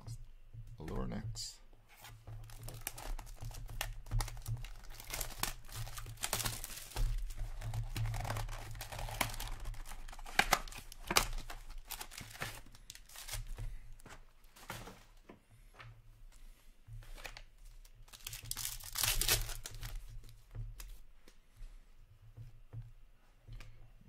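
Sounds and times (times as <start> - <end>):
cardboard box tearing: 4.3 - 13.4.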